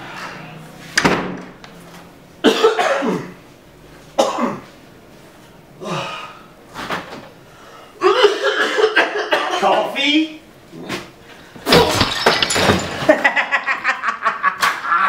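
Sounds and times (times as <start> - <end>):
man coughing and gagging: 2.4 - 3.4, 4.2 - 4.7, 8.0 - 10.0.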